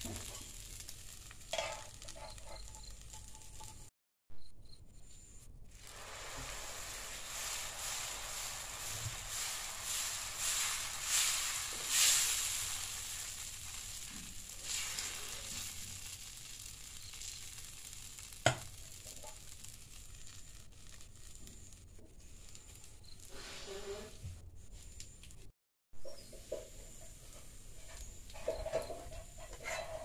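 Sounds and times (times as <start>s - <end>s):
batter sizzling on a hot griddle: 0.0s - 3.9s, 5.7s - 24.0s.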